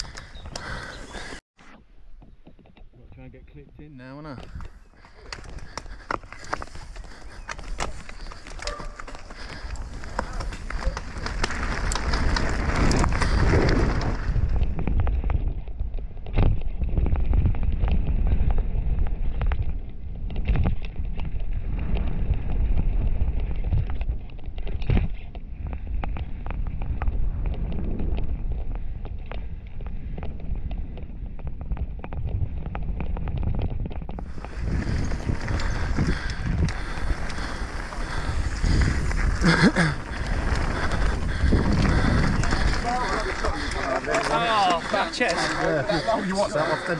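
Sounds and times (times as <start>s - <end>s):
bike knocking and rattling: 2.2s - 46.8s
wind buffeting microphone: 2.4s - 46.9s
tyres rumbling over gravel: 4.1s - 15.2s, 32.4s - 46.9s.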